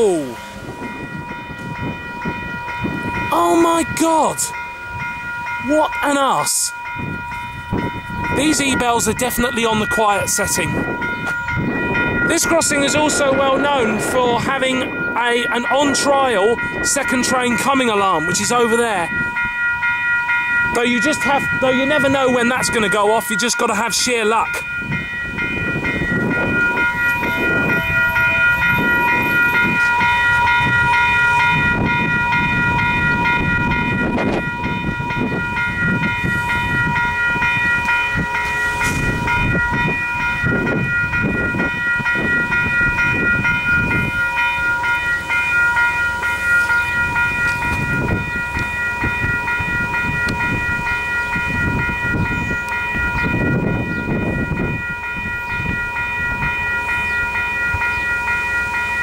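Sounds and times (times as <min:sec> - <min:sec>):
level crossing bells ringing: 0:00.0 - 0:59.0
low rumble: 0:10.7 - 0:16.8.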